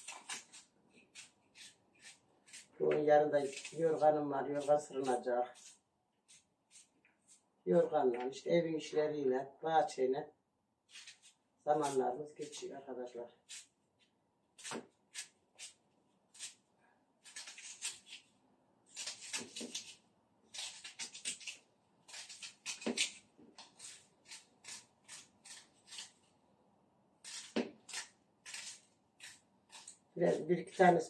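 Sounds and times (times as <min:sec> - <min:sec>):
knife slicing onion: 0:00.0 - 0:07.4, 0:10.8 - 0:12.6, 0:13.4 - 0:13.8, 0:14.6 - 0:16.6, 0:17.2 - 0:18.3, 0:18.9 - 0:26.3, 0:27.2 - 0:31.0.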